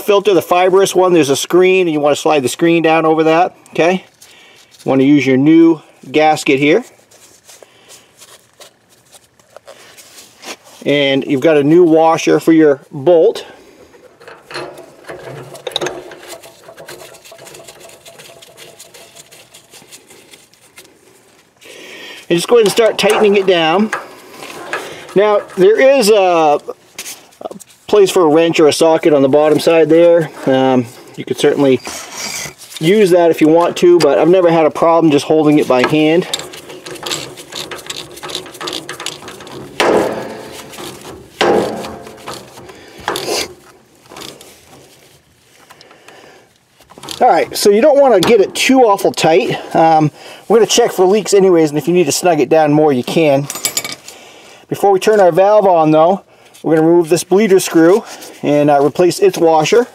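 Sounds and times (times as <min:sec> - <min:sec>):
metal parts clicking and rattling: 0:13.8 - 0:21.0, 0:22.3 - 0:26.8, 0:35.1 - 0:46.0, 0:46.8 - 0:49.6, 0:53.4 - 0:54.2
sharp metallic knocks: 0:36.8 - 0:43.3.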